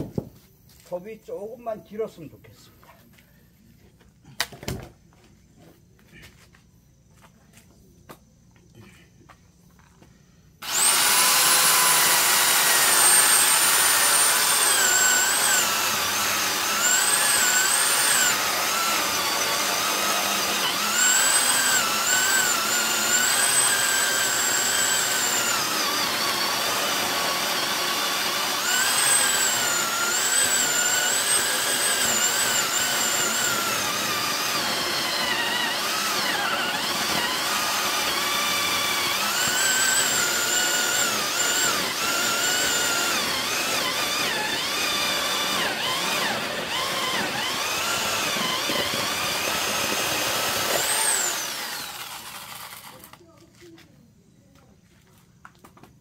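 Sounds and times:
electric chainsaw cutting log: 10.6 - 53.2.

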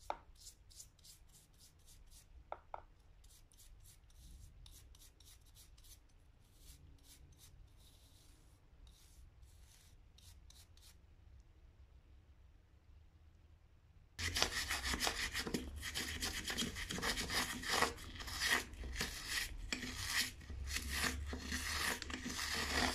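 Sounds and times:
scrub brush scrubbing metal: 14.2 - 22.9.

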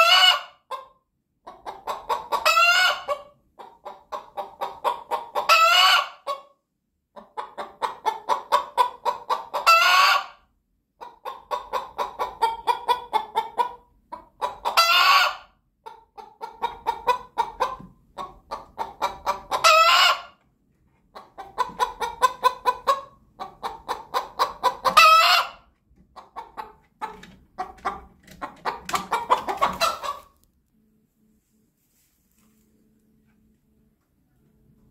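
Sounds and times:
hen cackling: 0.0 - 0.8, 1.5 - 6.5, 7.2 - 10.4, 11.0 - 15.5, 16.1 - 20.4, 21.2 - 30.4.

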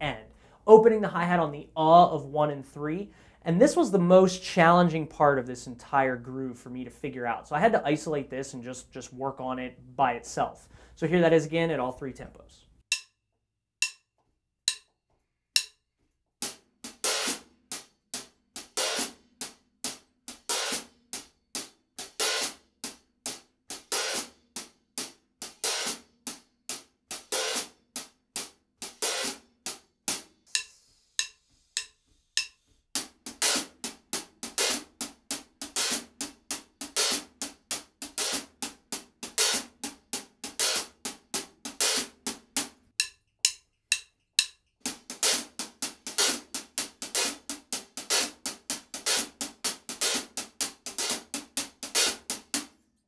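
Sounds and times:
hi-hat played with drumstick: 14.7 - 14.9, 15.6 - 15.8, 16.4 - 52.8.

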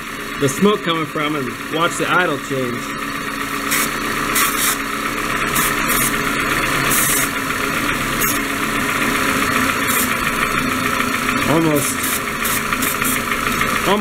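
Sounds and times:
engine idling: 0.0 - 14.0
aerosol spray hissing: 3.7 - 4.8, 5.6 - 6.2, 9.8 - 10.2, 11.8 - 13.3.

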